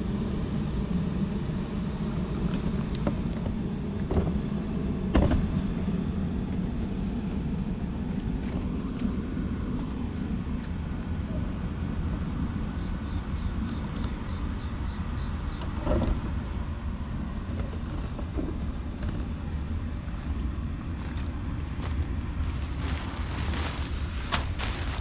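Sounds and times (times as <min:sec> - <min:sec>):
faint high whine: 0:00.0 - 0:25.0
low outdoor rumble: 0:00.0 - 0:25.0.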